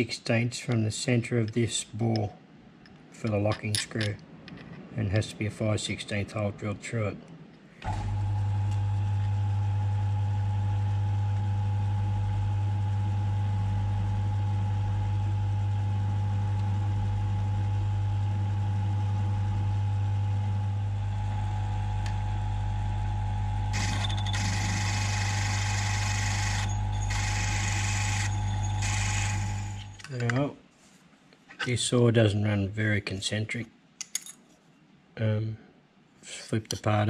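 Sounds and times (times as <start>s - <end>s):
mill drill motor hum: 7.8s - 30.1s
drill cutting metal scraping: 23.8s - 30.0s.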